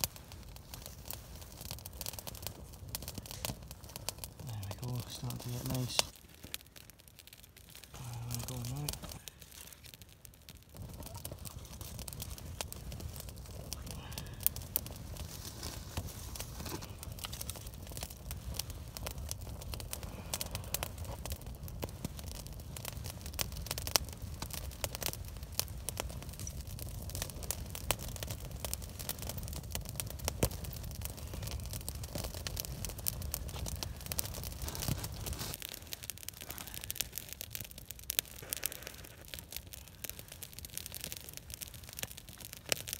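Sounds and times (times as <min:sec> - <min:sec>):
campfire crackling and popping: 0:00.0 - 0:42.9
low fire rumble: 0:00.0 - 0:42.9.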